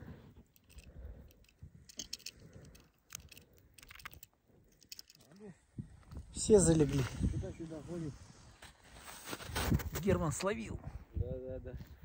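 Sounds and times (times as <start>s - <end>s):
small clicks and rattles: 0.5s - 5.4s.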